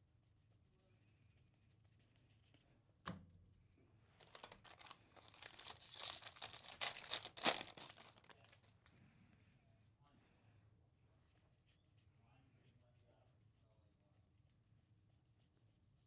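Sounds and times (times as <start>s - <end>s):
foil wrapper tearing and crinkling: 4.2s - 8.7s.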